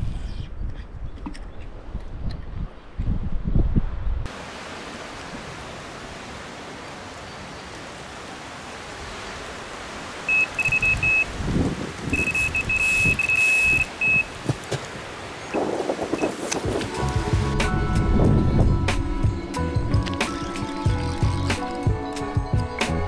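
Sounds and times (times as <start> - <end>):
electronic bite alarm beeping: 10.3 - 11.2, 12.1 - 14.3.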